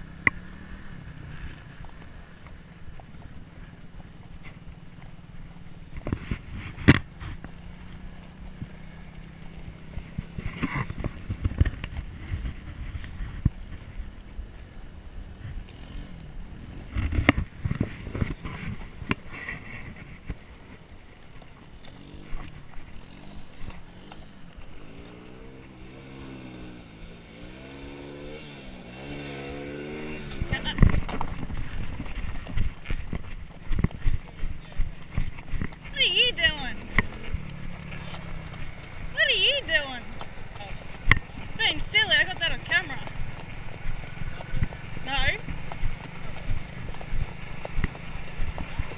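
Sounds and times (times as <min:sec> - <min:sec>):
horse hooves on dirt road: 0:00.0 - 0:48.9
quad bike engine revving: 0:00.0 - 0:48.9
wind on microphone: 0:09.6 - 0:20.6.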